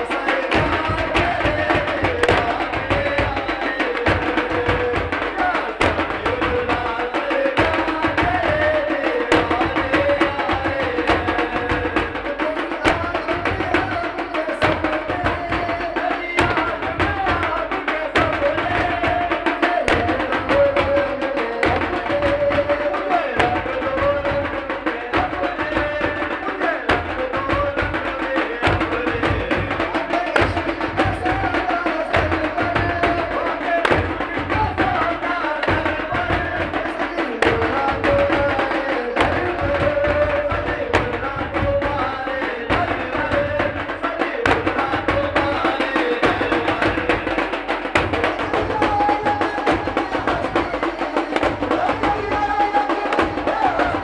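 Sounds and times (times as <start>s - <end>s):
frame drums beaten fast: 0.0s - 54.0s.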